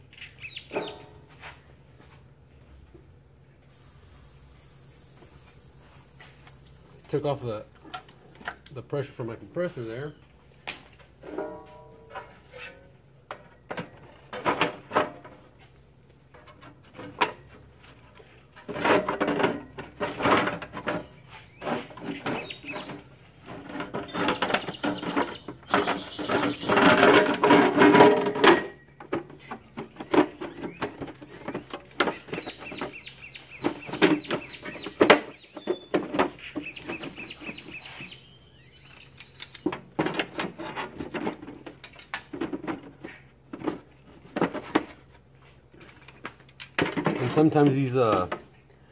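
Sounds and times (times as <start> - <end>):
high chirping bird calls: 0.1 - 1.0, 22.2 - 23.0, 24.1 - 26.8, 32.2 - 39.7
metal cover scraping and clunking: 11.2 - 15.6, 16.3 - 33.0, 39.6 - 45.1.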